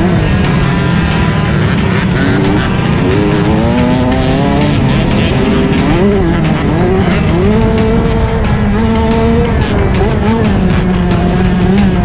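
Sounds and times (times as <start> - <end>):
motocross bike engine revving: 0.0 - 12.0.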